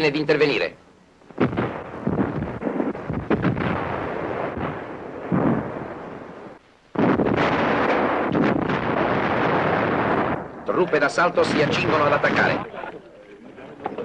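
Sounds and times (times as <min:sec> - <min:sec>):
rumble of gunfire: 0:01.2 - 0:12.7
sharp artillery blasts: 0:01.3 - 0:12.7.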